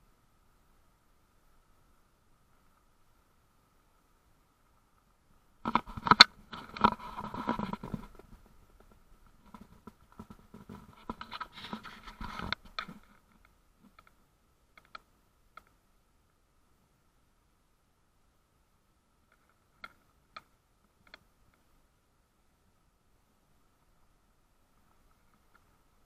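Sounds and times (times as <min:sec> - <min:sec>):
faint clicks: 0:04.9 - 0:15.8, 0:19.2 - 0:21.7
camera handling scraping: 0:05.7 - 0:08.3, 0:09.5 - 0:13.0.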